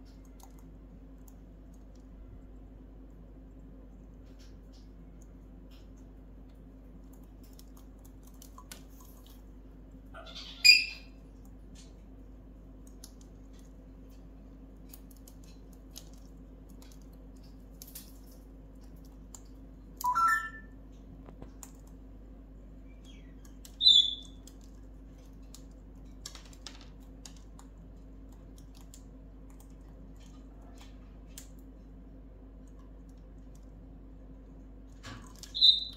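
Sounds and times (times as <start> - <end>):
parrot squawking: 10.2 - 11.1, 20.1 - 20.6, 23.8 - 24.2, 35.6 - 35.9
parrot whistle: 10.6 - 11.0, 20.0 - 20.7, 23.8 - 24.3, 35.5 - 35.9
beak clicking on wooden toys: 22.9 - 30.4.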